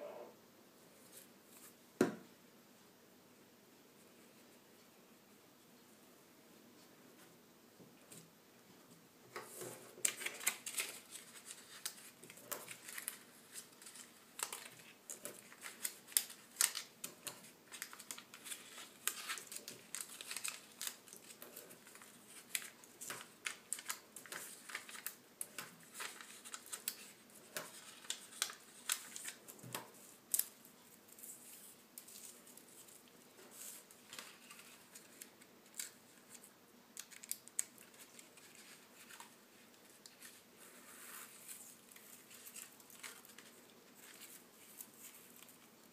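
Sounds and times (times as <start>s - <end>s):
paper rustling and crinkling: 9.4s - 45.9s.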